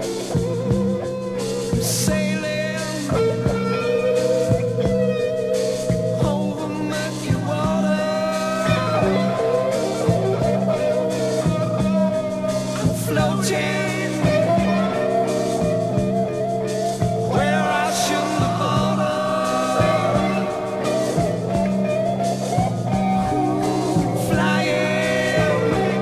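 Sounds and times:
electric guitars: 0.0s - 26.0s
psychedelic rock music: 0.0s - 26.0s.

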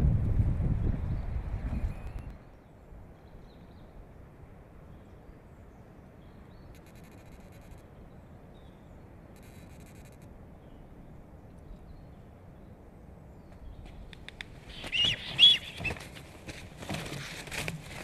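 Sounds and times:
low wind rumble: 0.0s - 9.4s
small birds chirping: 10.6s - 16.3s.

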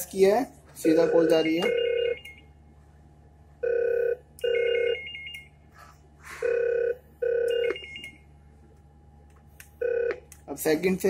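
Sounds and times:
telephone electronic ringer: 3.6s - 5.3s, 6.4s - 8.2s.

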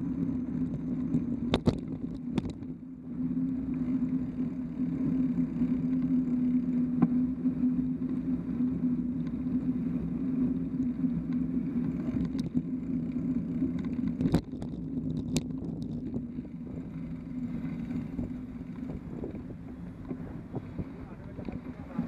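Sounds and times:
bicycle road rumble: 0.0s - 22.0s.

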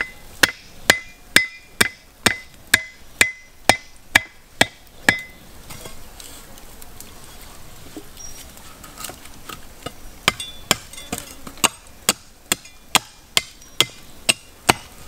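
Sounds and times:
cleaver chopping wood: 0.0s - 5.4s, 9.8s - 15.0s.

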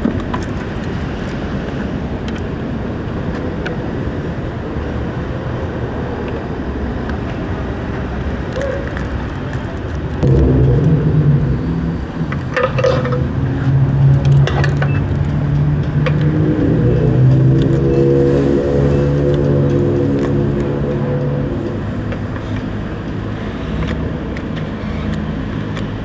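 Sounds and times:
riding noise: 0.0s - 26.0s.

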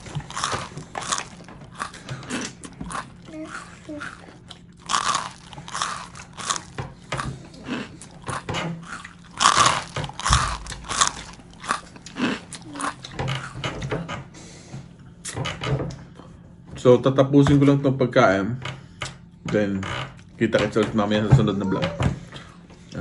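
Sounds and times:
chewing crispy fried chicken: 0.0s - 13.7s.

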